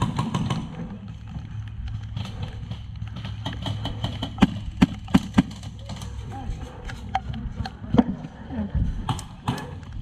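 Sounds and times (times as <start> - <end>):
rapid airsoft gunfire ticks: 0.0 - 6.1.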